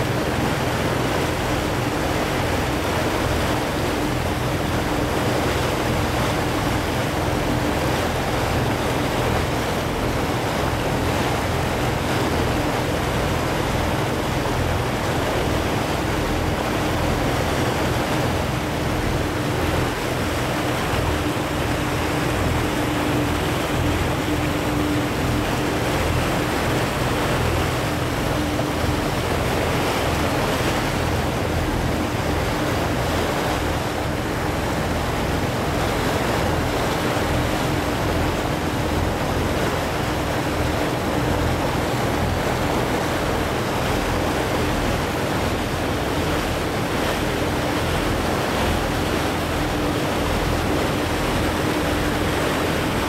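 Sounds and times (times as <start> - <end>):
boat engine humming: 0.0 - 53.0
water rushing in wake: 0.0 - 53.0.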